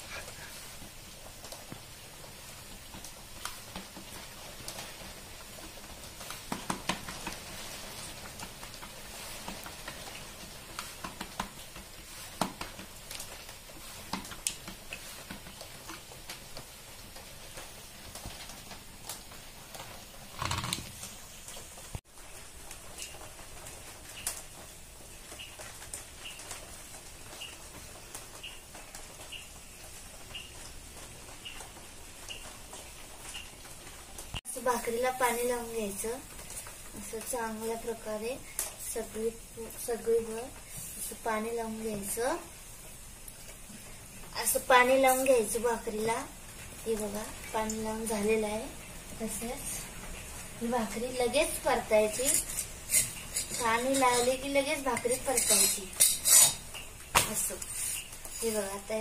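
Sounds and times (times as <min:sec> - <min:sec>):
hands patting dough on a plate: 0:06.0 - 0:16.7.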